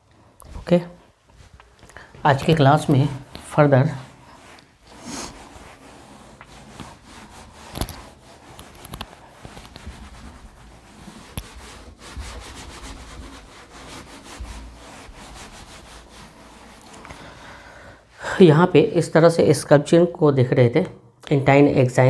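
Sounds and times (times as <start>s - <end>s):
pen scratching handwriting: 7.6s - 10.3s.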